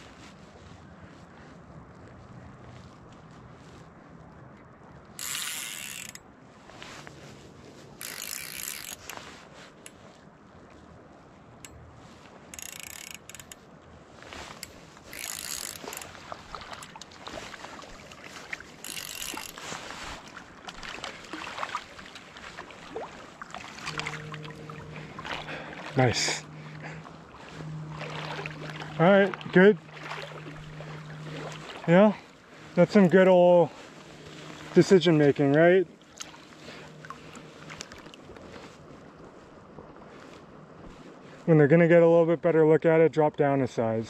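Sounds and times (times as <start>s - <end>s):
fishing reel drag ratcheting: 5.2s - 6.2s, 8.0s - 10.0s, 12.5s - 13.6s, 14.5s - 16.2s, 18.8s - 19.9s, 23.8s - 32.0s
small reel clicks: 5.2s - 6.2s, 8.0s - 9.2s, 12.5s - 13.6s, 14.5s - 16.1s, 18.8s - 19.6s.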